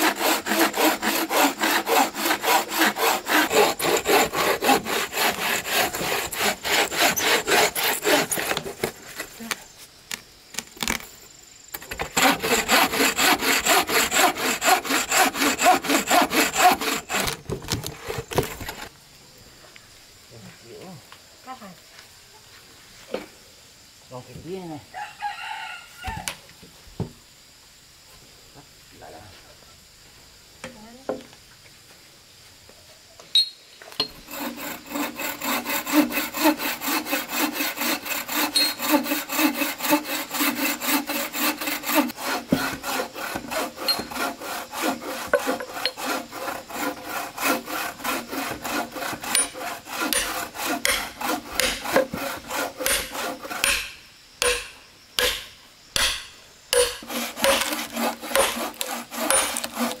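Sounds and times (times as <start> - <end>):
hand tool rasping: 0.0 - 8.9, 12.2 - 18.9, 34.0 - 55.4, 56.0 - 60.0.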